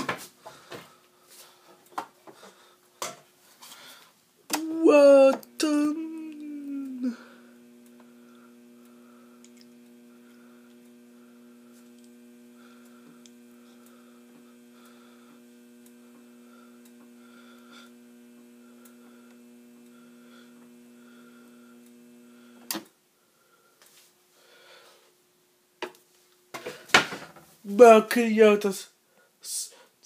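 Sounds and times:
dispenser valve humming: 0:04.5 - 0:22.8.

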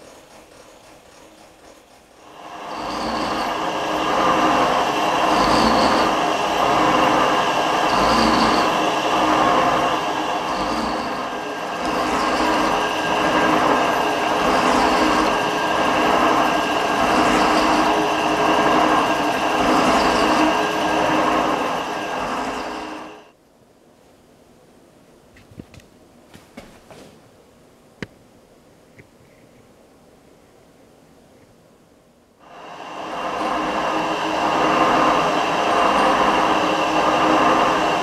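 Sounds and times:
metal cutting noise: 0:00.0 - 0:23.3, 0:32.5 - 0:38.0
metal shaper whine: 0:00.0 - 0:23.3, 0:32.5 - 0:38.0.

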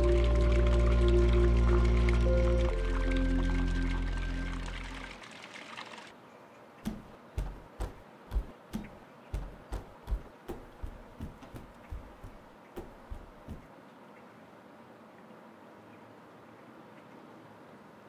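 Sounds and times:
music: 0:00.0 - 0:05.2
child's footsteps on concrete: 0:06.9 - 0:13.7.

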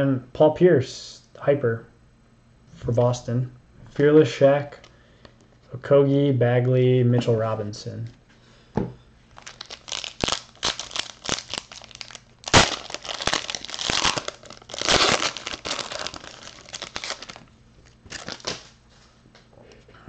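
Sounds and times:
foil wrapper crinkling and tearing: 0:09.3 - 0:18.8.

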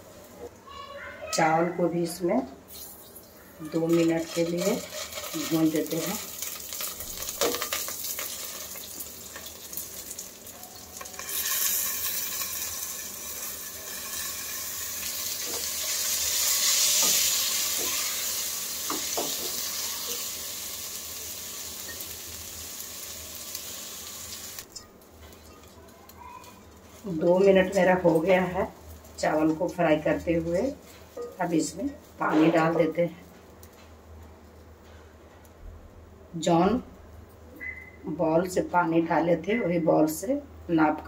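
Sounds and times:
rice sizzling in ghee: 0:02.7 - 0:32.8.

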